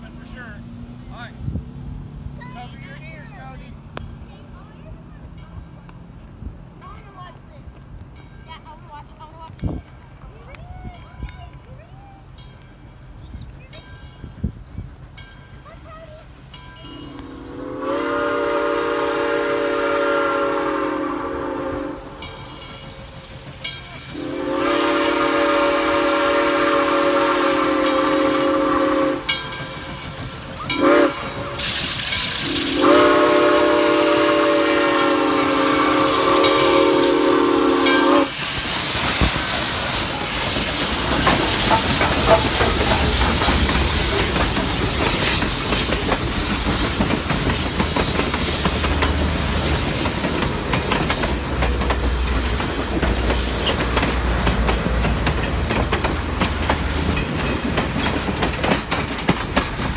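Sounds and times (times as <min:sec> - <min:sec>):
steam locomotives passing: 0:00.0 - 0:59.9
steam locomotive whistle: 0:17.0 - 0:22.3, 0:24.1 - 0:29.4, 0:30.7 - 0:43.2.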